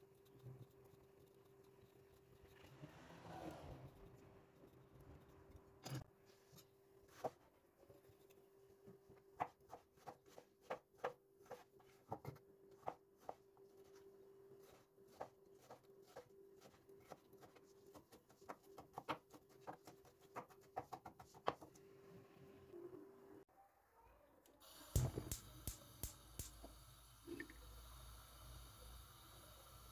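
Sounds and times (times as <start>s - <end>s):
faint steady hum: 24.2s - 29.9s.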